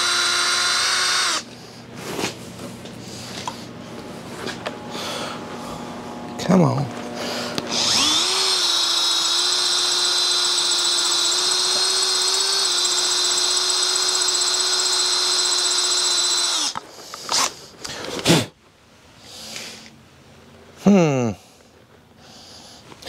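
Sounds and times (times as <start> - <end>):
cordless drill drilling metal: 0.0 - 1.5, 7.6 - 16.8.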